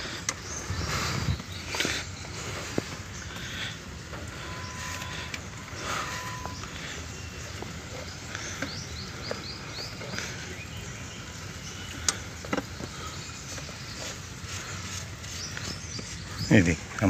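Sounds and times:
high falling chirps: 0.6s - 16.4s
belt rubbing on pulley: 12.2s - 16.5s.

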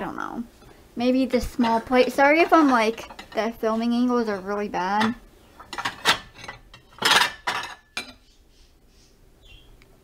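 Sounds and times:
ceramic plates clinking and scraping: 1.4s - 8.2s.

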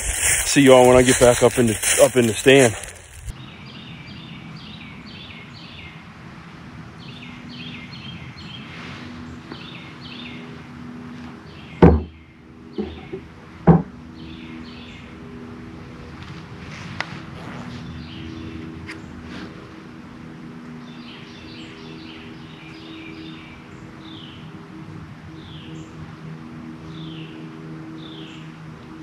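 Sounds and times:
small bird singing: 0.0s - 6.0s, 9.4s - 10.6s, 11.4s - 13.2s, 14.1s - 15.2s, 20.7s - 24.6s, 26.7s - 28.6s
steady low hum: 0.0s - 29.0s
sharp knocks: 11.8s - 12.1s, 12.8s - 13.9s.

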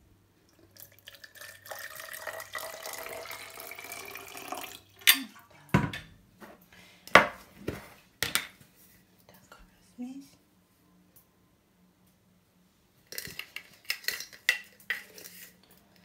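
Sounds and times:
water pouring into bottle: 0.6s - 5.0s.

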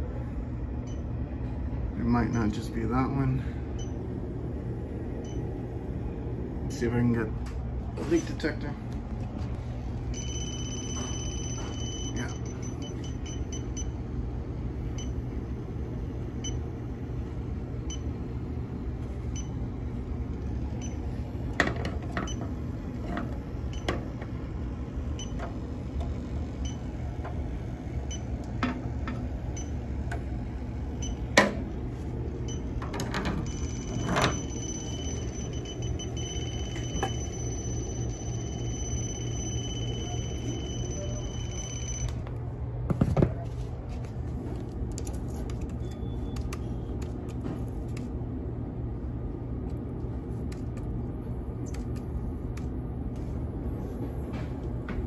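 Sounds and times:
steady machine hum: 0.0s - 55.0s
leak detector beeping: 3.7s - 4.0s, 5.2s - 5.5s, 10.0s - 14.0s, 14.9s - 15.2s, 16.4s - 16.7s, 20.8s - 21.1s, 23.7s - 24.3s, 25.1s - 25.5s, 26.6s - 26.9s, 28.0s - 28.4s, 29.5s - 29.8s, 31.0s - 31.4s, 32.4s - 42.2s.

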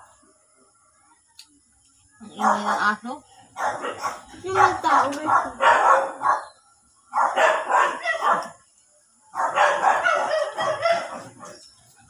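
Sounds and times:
dog barking: 2.4s - 3.0s, 3.6s - 8.6s, 9.3s - 11.6s.

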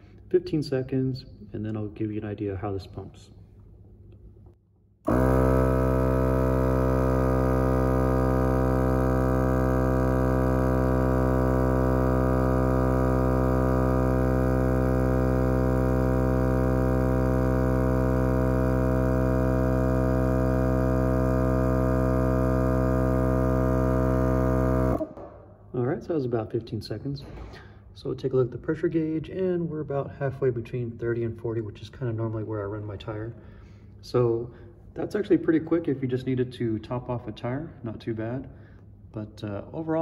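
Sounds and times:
portable air compressor running: 5.1s - 25.3s.

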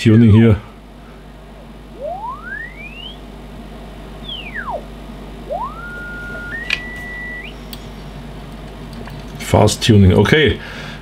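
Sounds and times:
radio heterodyne whistle sliding in pitch: 2.0s - 3.2s, 4.2s - 4.9s, 5.5s - 7.6s.

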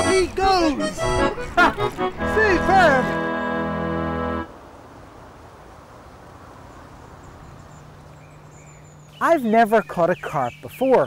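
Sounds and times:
theme music held chord: 0.0s - 4.5s
faint outdoor background noise: 0.0s - 11.0s.

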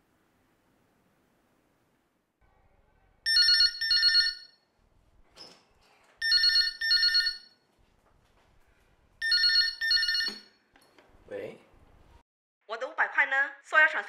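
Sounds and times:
telephone ringing: 3.3s - 4.7s, 6.2s - 7.7s, 9.2s - 10.7s.

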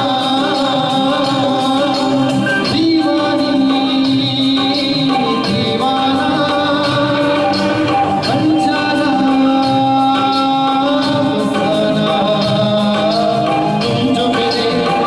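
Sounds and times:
karaoke backing track: 0.0s - 15.0s
man singing into a microphone: 0.0s - 15.0s.

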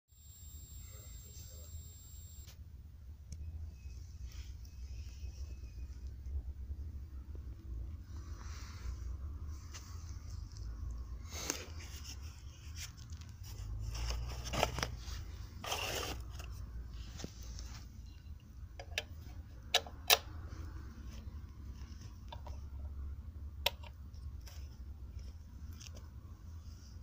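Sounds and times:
cardboard rustling and scraping: 11.4s - 18.0s.

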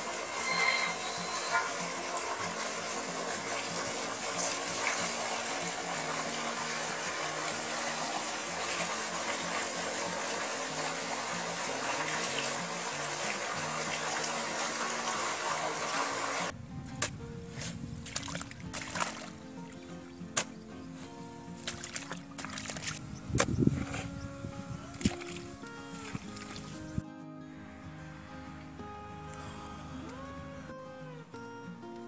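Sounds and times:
water gushing into a tank: 0.0s - 16.5s
music melody: 0.0s - 32.0s.

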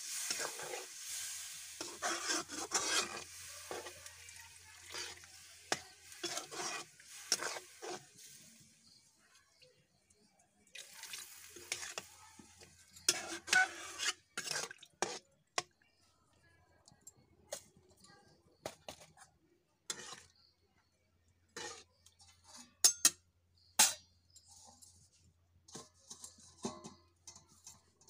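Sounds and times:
metal ladle scraping a pan: 0.0s - 9.0s, 10.8s - 15.8s, 19.9s - 20.6s, 21.5s - 28.0s.

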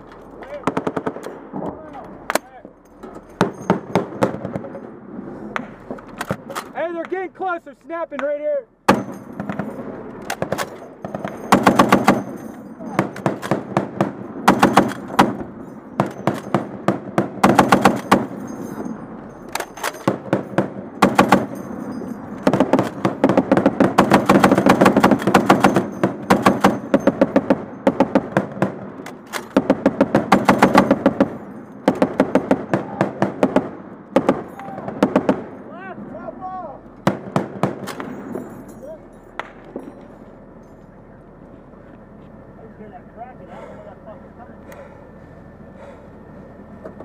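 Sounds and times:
heavy machine gun bursts: 8.9s - 35.6s.

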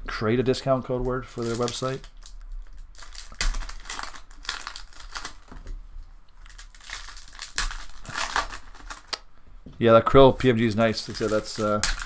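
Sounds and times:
foil wrapper tearing and crinkling: 1.4s - 5.6s, 6.4s - 9.2s, 10.6s - 12.0s.

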